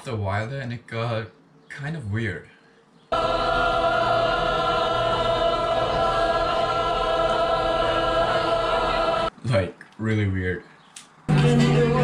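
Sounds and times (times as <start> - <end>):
choir-like chord: 3.1 - 9.3, 11.3 - 12.0.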